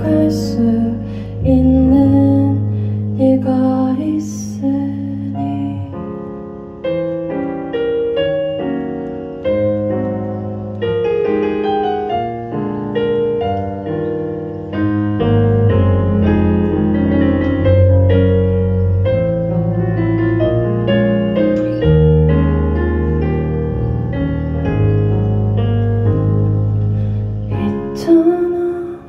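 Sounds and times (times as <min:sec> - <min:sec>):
piano chords and melody: 0:00.0 - 0:29.0.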